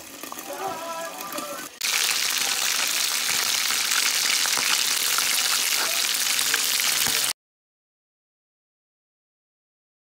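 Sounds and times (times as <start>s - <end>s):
chicken sizzling in oil: 0.0s - 7.4s
oil crackling and popping: 0.0s - 7.4s.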